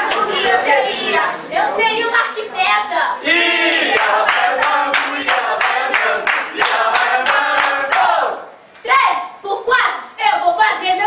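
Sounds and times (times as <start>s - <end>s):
group singing in unison: 0.0s - 1.5s, 3.2s - 8.5s
quick handclaps: 3.9s - 8.1s.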